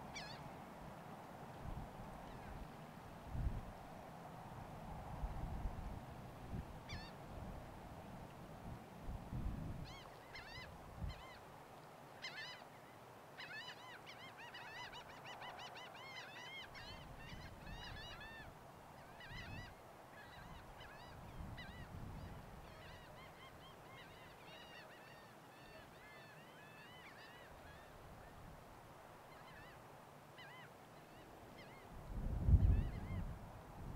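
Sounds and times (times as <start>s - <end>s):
flock of birds calling: 0.2s - 0.4s.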